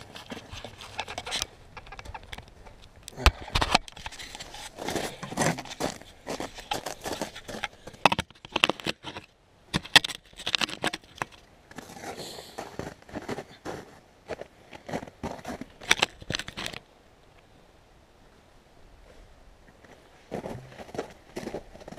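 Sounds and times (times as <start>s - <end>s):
handling noise clunks and scrapes: 0.0s - 12.2s, 15.4s - 16.8s, 19.1s - 21.1s.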